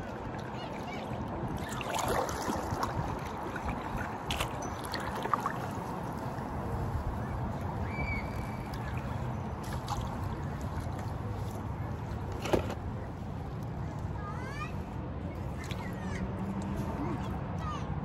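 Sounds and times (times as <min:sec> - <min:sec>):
paddle pulling through water: 0:00.0 - 0:17.5.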